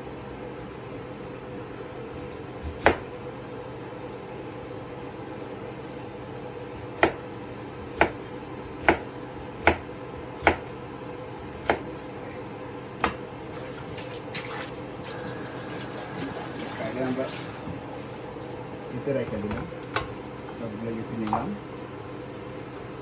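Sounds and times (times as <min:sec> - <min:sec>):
steady low hum: 0:00.0 - 0:23.0
knife chopping on cutting board: 0:02.1 - 0:03.0, 0:06.9 - 0:07.2, 0:07.8 - 0:10.7, 0:11.4 - 0:11.9, 0:13.0 - 0:13.2.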